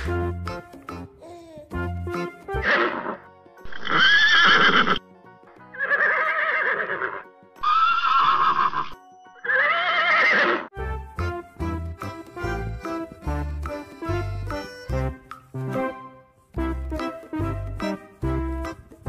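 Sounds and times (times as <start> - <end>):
upbeat music with steady beat: 0.0 - 2.6, 10.8 - 19.0
horse whinnying: 3.7 - 5.0, 5.7 - 10.7.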